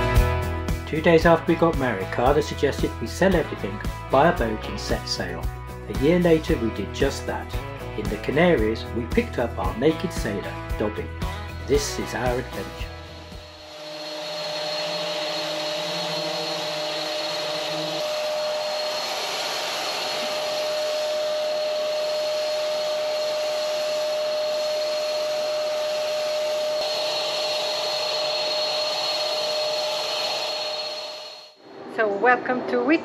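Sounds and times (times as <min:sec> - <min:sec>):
paint sprayer turbine whine: 0:00.0 - 0:31.9
low hum: 0:10.3 - 0:32.0.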